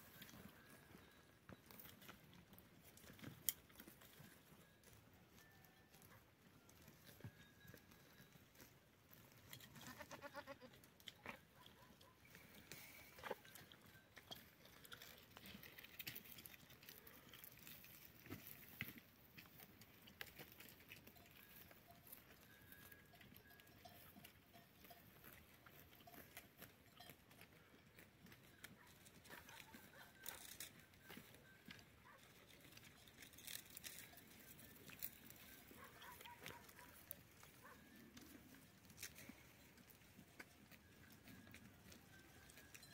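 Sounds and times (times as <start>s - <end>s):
goats clicking and rustling on stones: 0.0s - 42.9s.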